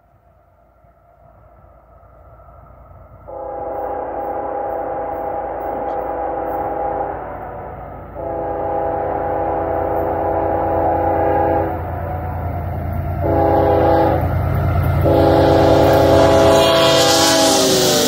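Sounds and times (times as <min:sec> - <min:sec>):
locomotive horn blasts: 0:03.3 - 0:12.4, 0:13.2 - 0:18.0.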